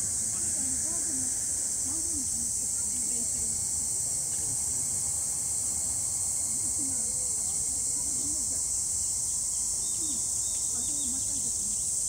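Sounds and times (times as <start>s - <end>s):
insects chirring: 0.0s - 12.0s.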